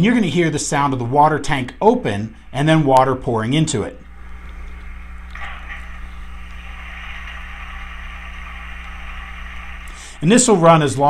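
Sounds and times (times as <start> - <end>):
low steady hum: 0.0 - 11.0
water pouring: 4.0 - 11.0.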